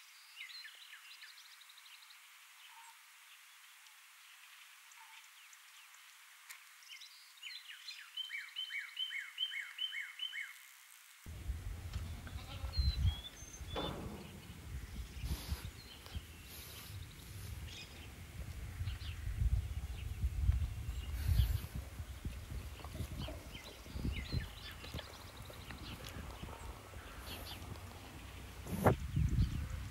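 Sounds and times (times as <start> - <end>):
bird chirping: 11.3 - 29.9
wind rumble on microphone: 11.3 - 29.9
llamas calling: 11.7 - 15.5.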